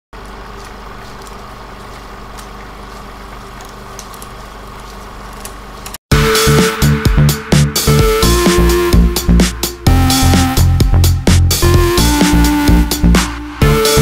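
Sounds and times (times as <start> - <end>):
steady low hum: 0.2 - 14.0
electronic dance music: 6.1 - 14.0.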